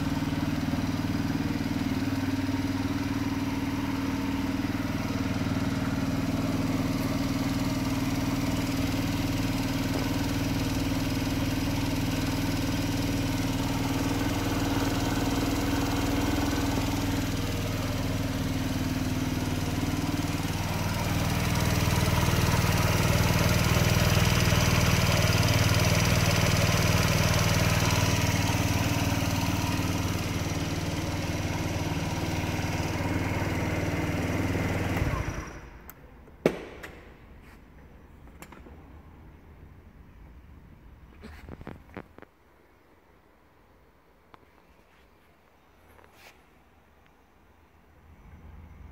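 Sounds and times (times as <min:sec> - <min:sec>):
scooter engine idling: 0:00.0 - 0:35.9.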